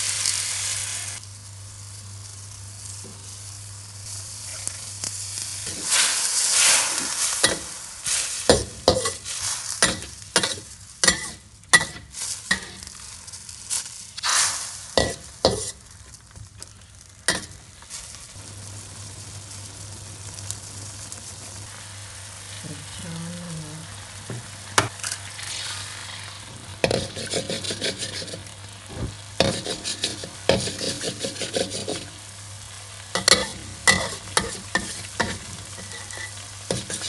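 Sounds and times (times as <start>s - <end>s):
frying hiss: 0.0s - 37.0s
spatula scraping a wok: 5.4s - 15.9s, 26.8s - 28.6s, 29.4s - 32.2s, 33.1s - 37.0s.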